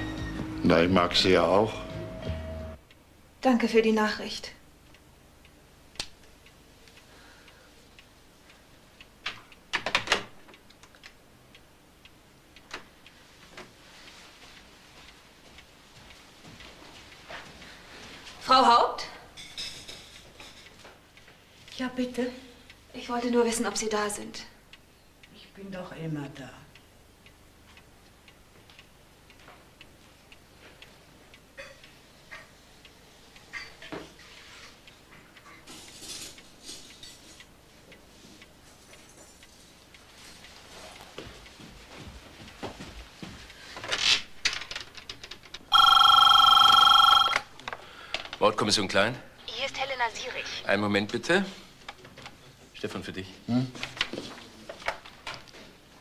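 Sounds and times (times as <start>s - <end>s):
clock ticking: 45.7s - 47.4s.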